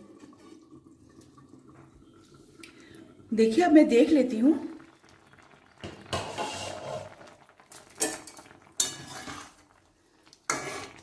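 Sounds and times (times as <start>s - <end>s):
spatula scraping metal pan: 6.1s - 7.1s, 8.8s - 9.6s, 10.5s - 11.0s.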